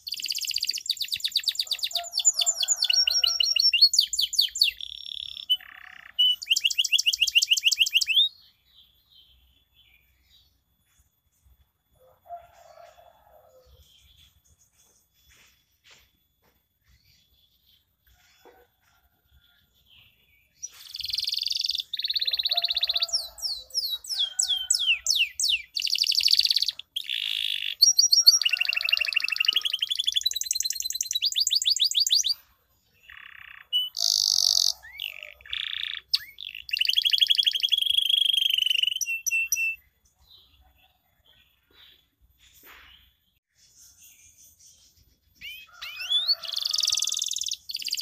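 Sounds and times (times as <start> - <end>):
canary singing: 0.0 - 8.4, 20.6 - 32.4, 33.0 - 39.9, 45.3 - 48.0.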